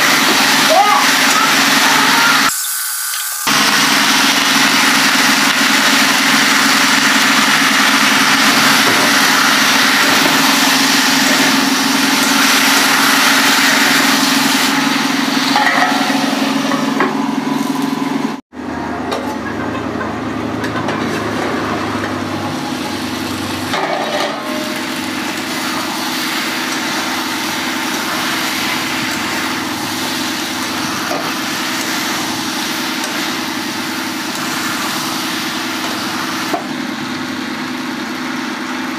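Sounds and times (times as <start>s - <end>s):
vegetables sizzling in a pan: 0.0s - 16.9s, 22.4s - 37.3s
engine-like hum: 3.5s - 38.9s.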